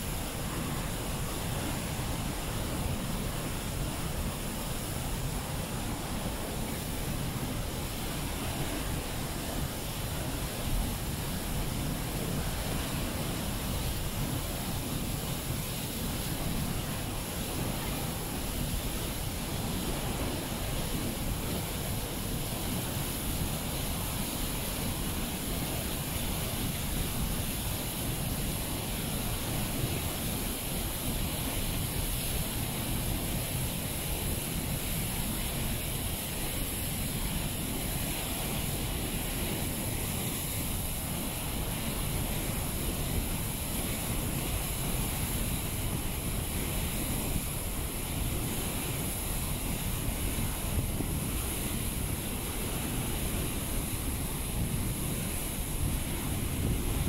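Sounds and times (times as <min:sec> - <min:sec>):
waterfall roaring: 0:00.0 - 0:57.0
wind buffeting microphone: 0:49.6 - 0:57.0.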